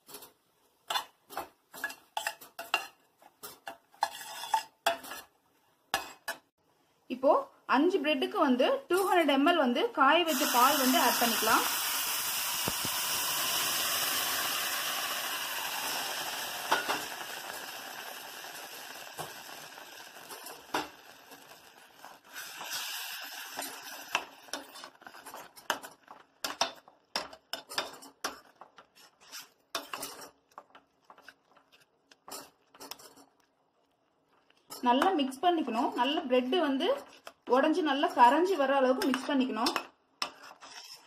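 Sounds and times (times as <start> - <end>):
milk sizzling in hot pan: 10.2 - 36.5.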